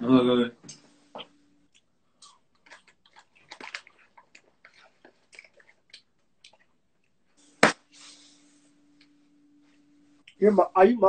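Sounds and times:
wafers crunching while chewed: 1.7s - 7.2s.

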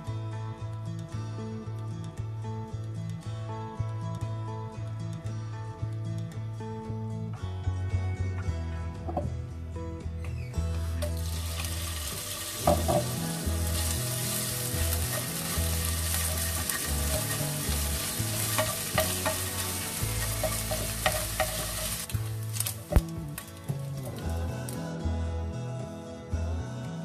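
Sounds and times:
food sizzling in hot oil: 11.0s - 24.3s
spatula clicking against pan: 16.1s - 22.0s.

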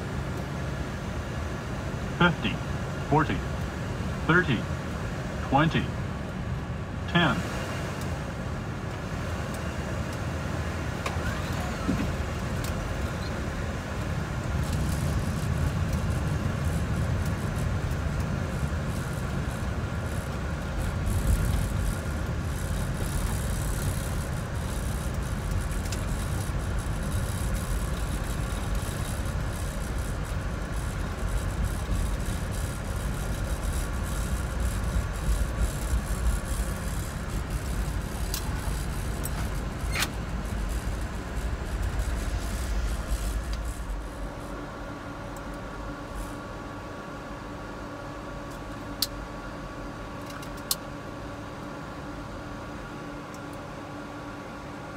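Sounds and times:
jet engine and air rush: 0.0s - 17.6s, 31.0s - 47.2s
low wheel rumble: 6.1s - 46.4s.

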